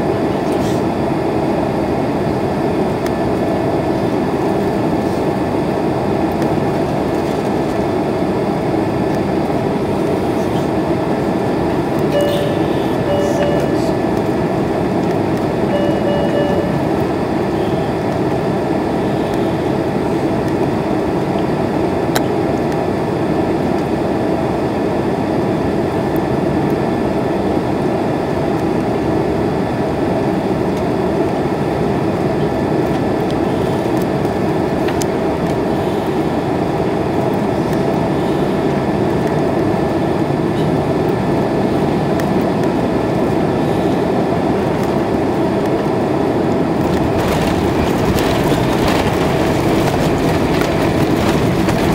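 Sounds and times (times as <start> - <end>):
jet engines and rushing air: 0.0 - 51.9
faint high steady tone: 12.1 - 14.0, 15.7 - 16.9.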